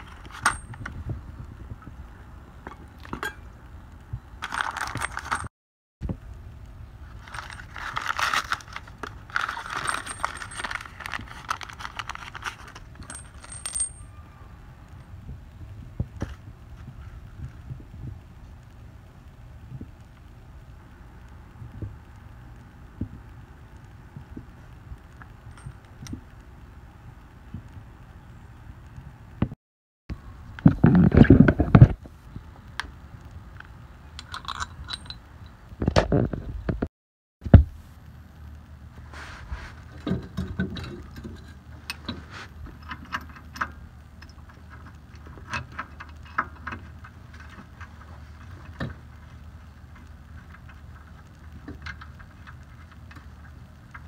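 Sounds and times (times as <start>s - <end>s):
metal washers clinking on concrete: 0.0s - 0.9s, 7.2s - 14.2s, 34.2s - 35.2s
packet crinkling: 7.1s - 12.9s
rubbing and knocking on microphone: 30.6s - 32.1s.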